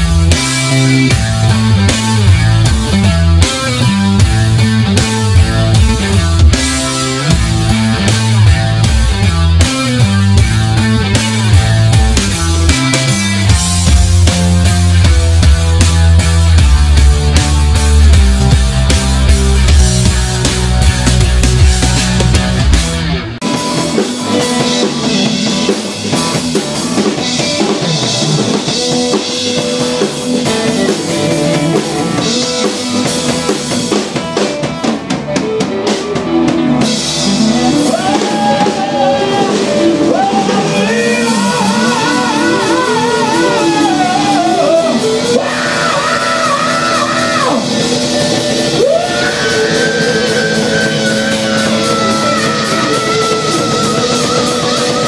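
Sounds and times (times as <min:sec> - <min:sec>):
live rock band playing: 0:00.0 - 0:55.0
person singing with vibrato: 0:37.4 - 0:47.8, 0:48.8 - 0:55.0.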